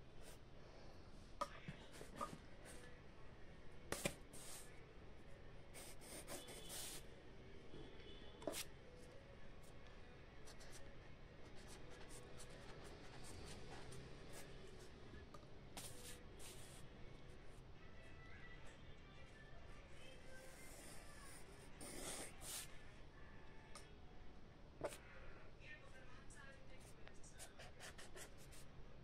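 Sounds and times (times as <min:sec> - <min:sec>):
pen scratching on paper: 0:05.8 - 0:07.0, 0:20.6 - 0:22.7, 0:27.4 - 0:28.6.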